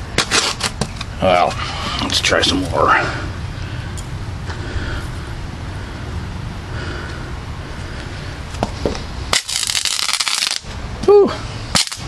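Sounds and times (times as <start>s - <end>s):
firework small snaps: 9.3s - 10.6s, 11.7s - 12.0s
loud dense firework crackling: 9.3s - 10.6s, 11.8s - 12.0s.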